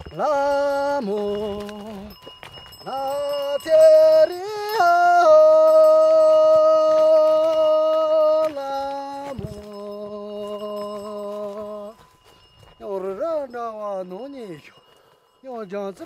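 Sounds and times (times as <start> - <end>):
person singing: 2.8 - 12.0.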